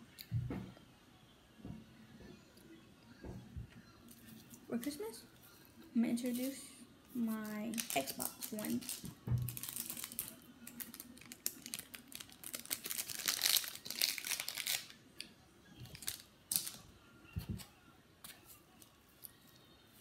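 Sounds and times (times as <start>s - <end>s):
crinkling handling noise: 4.0s - 15.1s, 15.8s - 20.0s.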